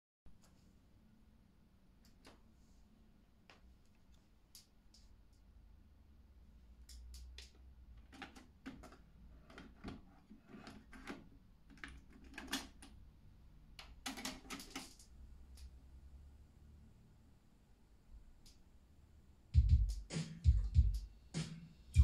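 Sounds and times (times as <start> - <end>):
plastic cassette clicks and clacks: 7.2 - 13.0, 13.8 - 15.1.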